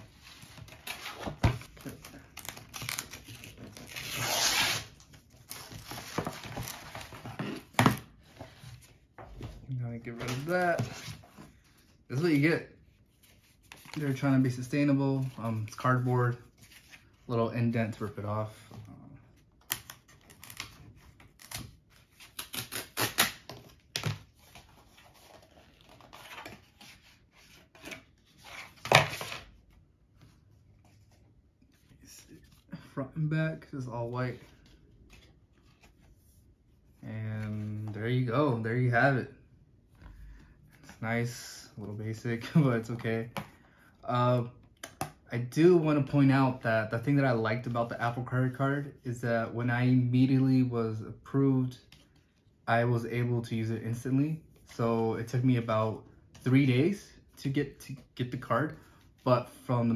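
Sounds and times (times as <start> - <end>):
cardboard tearing and rustling: 0.2 - 8.0.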